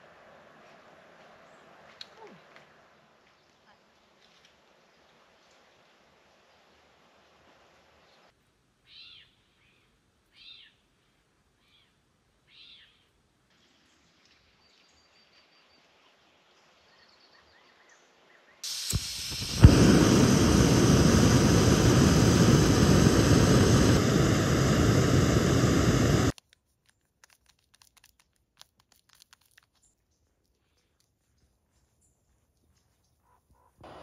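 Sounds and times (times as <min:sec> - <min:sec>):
burner lighting pop: 0:18.6 - 0:26.4
burner rushing hiss: 0:18.6 - 0:26.4
soft gas hiss: 0:18.6 - 0:26.4
stove click: 0:18.7 - 0:23.9.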